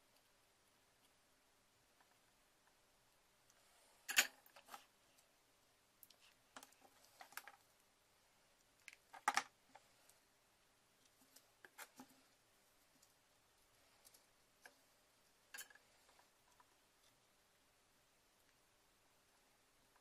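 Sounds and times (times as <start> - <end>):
plastic and tools clicking and knocking: 8.8 - 9.6.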